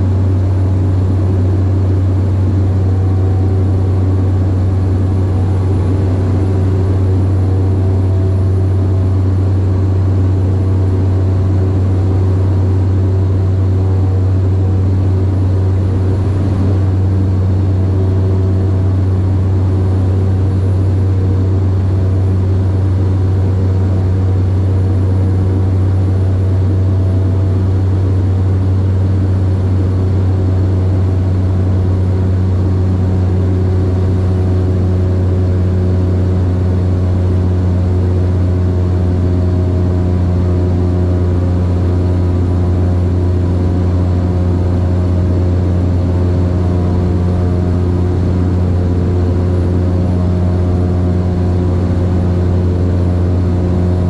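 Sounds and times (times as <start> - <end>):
turboprop engine drone in cabin: 0.0 - 54.0.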